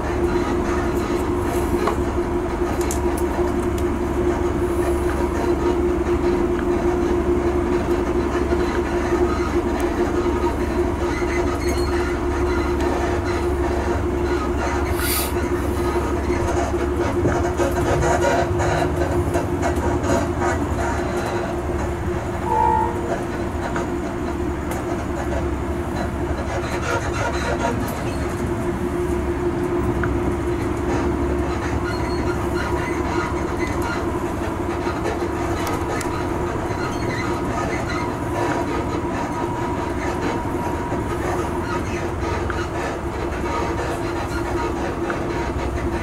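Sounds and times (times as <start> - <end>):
train rumbling: 0.0 - 46.0
steady hum: 21.5 - 24.6.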